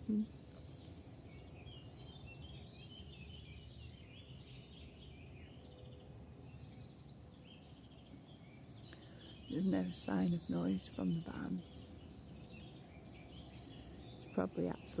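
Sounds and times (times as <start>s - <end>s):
small birds chirping and trilling: 0.0s - 15.0s
road traffic rumble: 4.9s - 15.0s.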